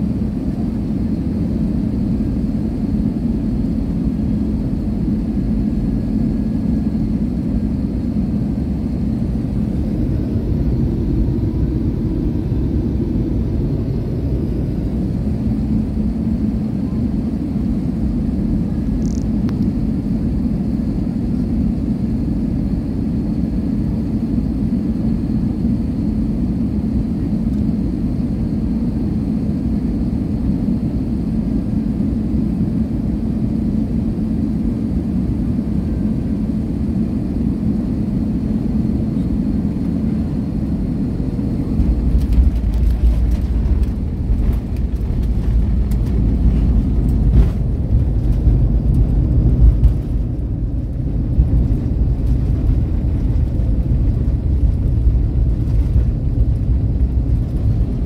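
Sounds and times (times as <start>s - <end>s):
airliner cabin drone: 0.0s - 58.0s
wheels rumbling on runway: 5.8s - 17.2s, 38.8s - 58.0s.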